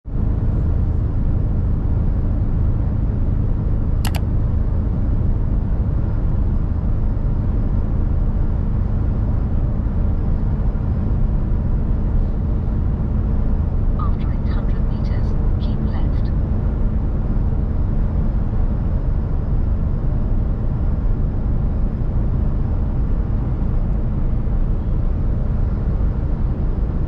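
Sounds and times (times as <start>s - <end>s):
truck engine and road rumble: 0.1s - 27.0s
short click: 4.1s - 4.3s.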